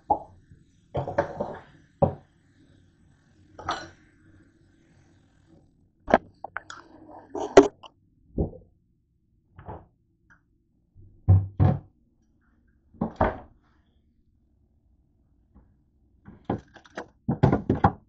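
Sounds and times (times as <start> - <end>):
kitchen things knocking and clunking: 1.0 - 2.2, 16.4 - 18.0.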